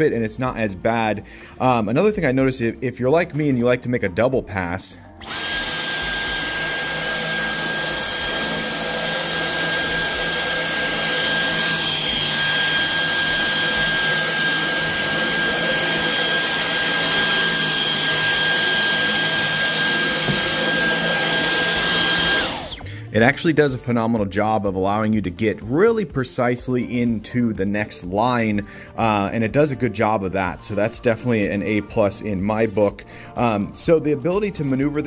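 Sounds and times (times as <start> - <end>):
vacuum cleaner motor whine: 5.2 - 23.0.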